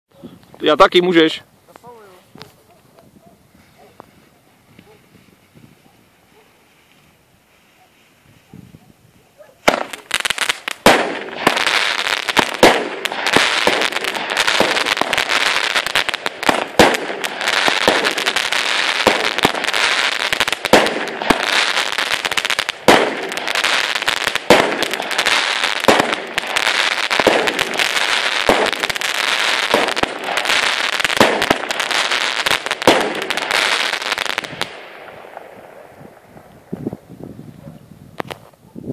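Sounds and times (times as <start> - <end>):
firework crackling: 4.0 - 38.6
firework bangs: 9.6 - 37.1.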